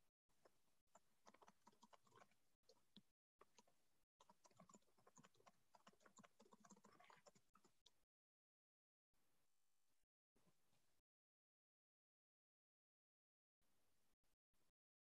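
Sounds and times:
faint keyboard typing: 0.4s - 8.0s.

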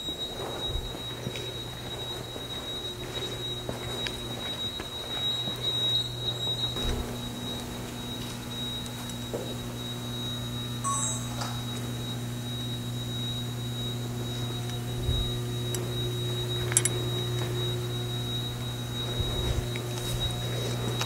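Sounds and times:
low electrical hum: 0.0s - 21.0s
high-pitched alarm tone: 10.8s - 13.2s.

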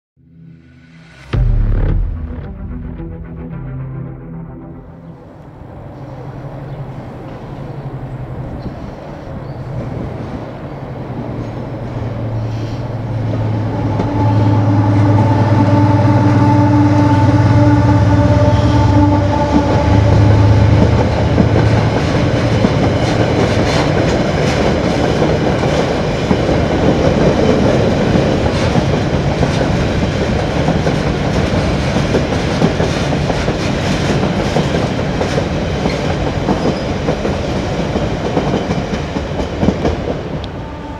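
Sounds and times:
higher steady tones: 0.2s - 6.6s
diesel locomotive engine droning: 0.2s - 40.9s
train wheels clattering over rail joints: 20.1s - 40.4s.

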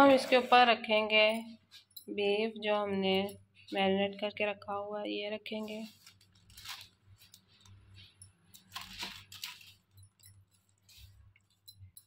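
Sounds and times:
paper rustling: 5.6s - 11.5s.

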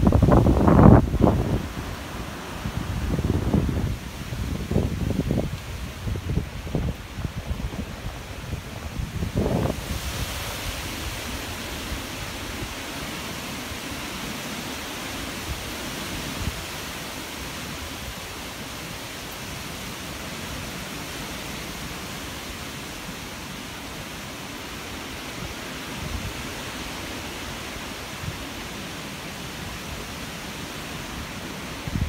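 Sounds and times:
wind rumble on microphone: 0.0s - 13.2s, 31.2s - 32.0s
wind rushing through leaves: 0.0s - 32.0s.

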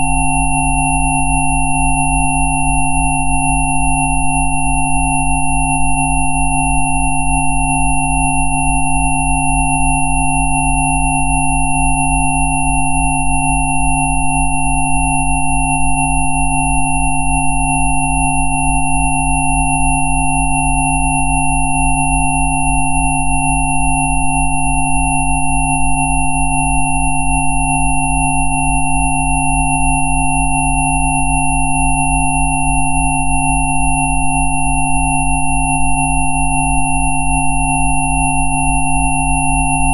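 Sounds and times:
electronic sine tone drone: 0.0s - 39.9s.

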